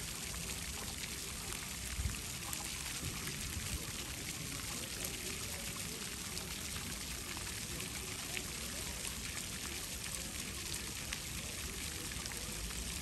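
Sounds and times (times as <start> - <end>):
fountain water splashing on paving: 0.0 - 13.0
water drips and spatters: 0.0 - 13.0.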